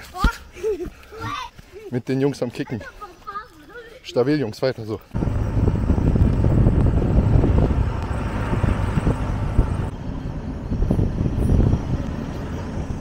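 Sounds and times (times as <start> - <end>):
road noise: 2.3 - 13.0
wind buffeting microphone: 5.2 - 13.0.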